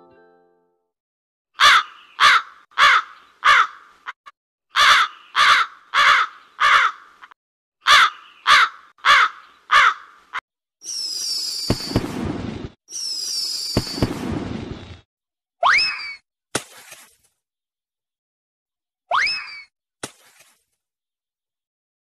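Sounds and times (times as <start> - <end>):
crow cawing: 1.6 - 10.4
firework whistle: 10.8 - 15.0
firework bang and crackle: 11.0 - 15.1.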